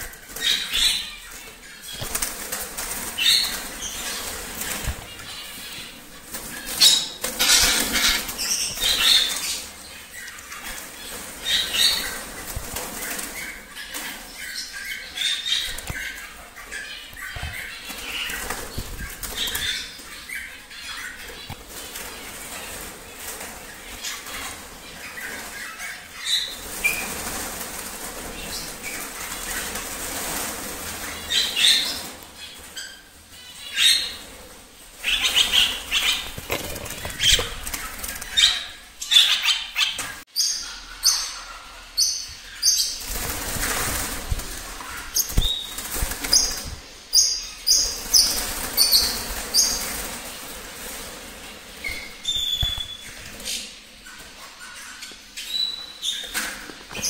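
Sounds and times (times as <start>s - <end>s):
birds flapping wings: 1.9s - 9.5s, 10.4s - 14.2s, 35.1s - 38.5s, 43.0s - 47.0s, 47.7s - 53.4s.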